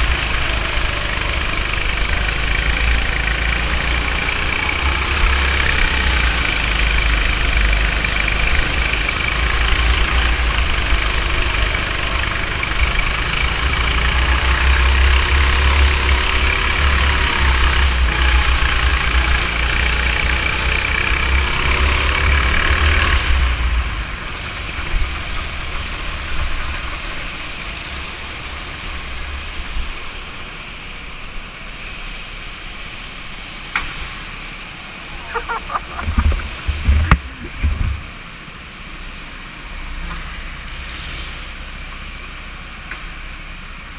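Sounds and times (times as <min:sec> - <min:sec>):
go-kart engine running: 0:00.0 - 0:30.6, 0:33.6 - 0:43.9
wind buffeting microphone: 0:35.2 - 0:38.2.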